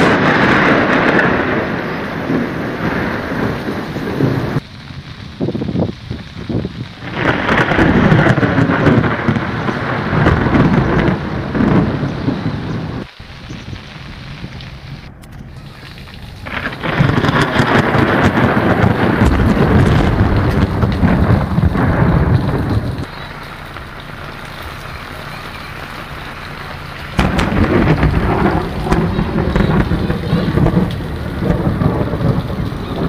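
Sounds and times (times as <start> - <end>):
rain falling on water: 0.0 - 33.0.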